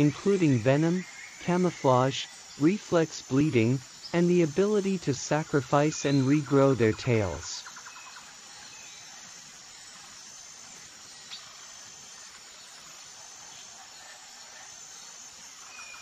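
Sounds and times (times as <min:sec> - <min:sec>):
high insect chirps: 0:00.0 - 0:16.0
outdoor hiss: 0:00.0 - 0:16.0.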